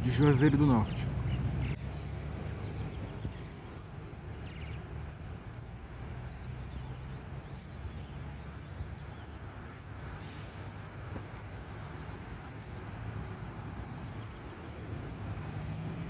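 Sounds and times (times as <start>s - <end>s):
small birds chirping: 0.0s - 5.0s, 5.7s - 10.2s.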